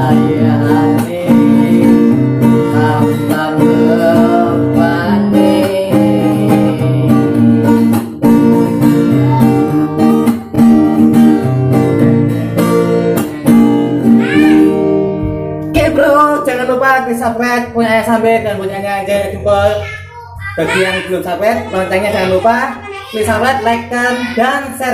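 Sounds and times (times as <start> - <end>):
man singing: 0.0 - 8.2, 15.7 - 18.6, 23.2 - 24.9
classical guitar strumming: 0.0 - 20.0.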